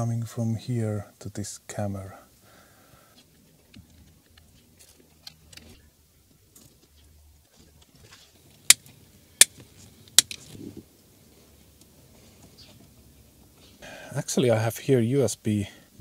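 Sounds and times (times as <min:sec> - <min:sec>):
hands rustling cable: 0:03.1 - 0:13.7.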